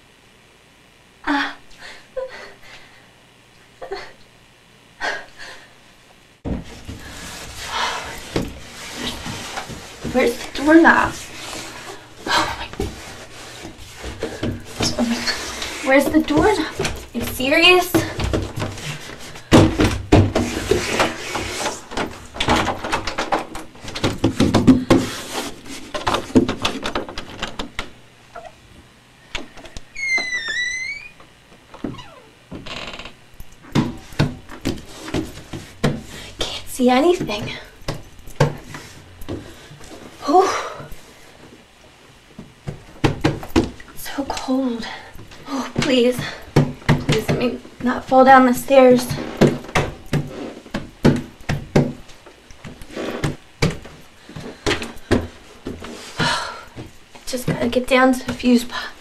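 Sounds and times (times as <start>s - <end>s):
footsteps on stairs: 6.4s - 27.2s, 31.8s - 41.6s, 42.2s - 58.9s
door hinge creaking: 29.9s - 33.2s.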